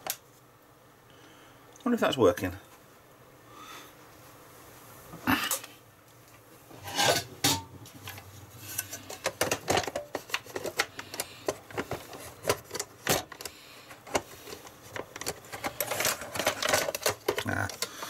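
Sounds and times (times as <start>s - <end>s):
plastic and metal clicks and rattles: 9.0s - 18.0s.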